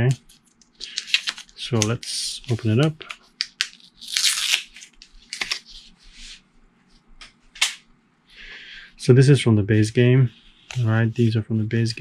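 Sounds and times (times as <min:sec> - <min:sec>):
paper band ripping: 0:00.8 - 0:05.8
cardboard tiles clicking and rustling: 0:02.8 - 0:03.8.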